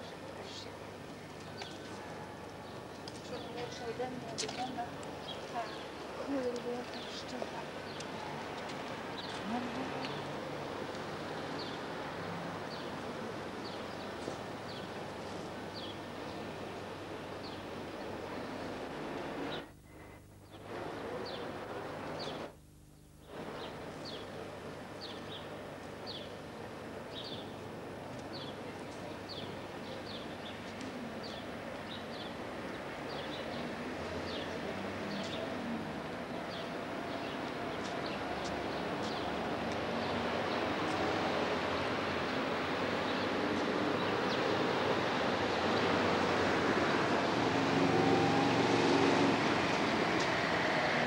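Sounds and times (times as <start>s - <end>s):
city traffic: 0.0s - 22.6s, 23.2s - 51.0s
steady background noise: 0.0s - 51.0s
engine hum: 23.2s - 51.0s.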